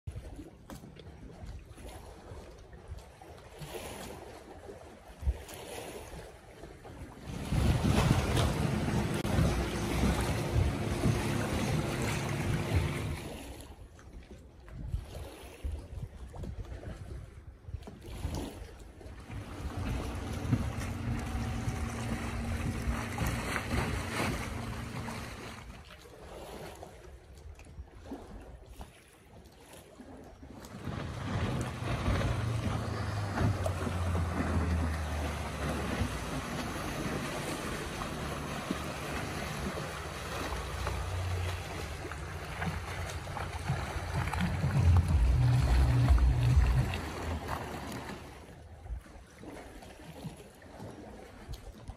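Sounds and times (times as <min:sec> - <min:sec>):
water noise: 0:00.0 - 0:51.9
motorboat engine droning: 0:06.9 - 0:13.8, 0:19.1 - 0:26.7, 0:30.5 - 0:48.8
wind buffeting microphone: 0:07.0 - 0:13.6, 0:14.6 - 0:26.0, 0:30.4 - 0:48.4.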